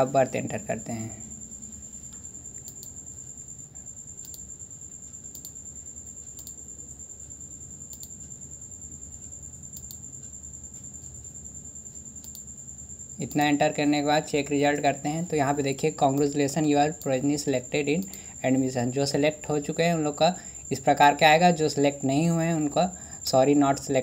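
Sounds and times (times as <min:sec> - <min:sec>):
low background hum: 0:00.0 - 0:24.0
computer mouse clicking: 0:02.5 - 0:03.0, 0:04.2 - 0:04.5, 0:05.1 - 0:05.6, 0:06.3 - 0:06.6, 0:07.8 - 0:08.3, 0:09.2 - 0:10.4, 0:12.2 - 0:12.5.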